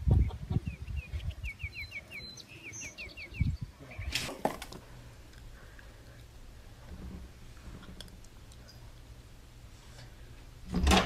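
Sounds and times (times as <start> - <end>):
low wind rumble: 0.0 - 1.8, 3.2 - 4.1
bird chirping: 0.1 - 4.3.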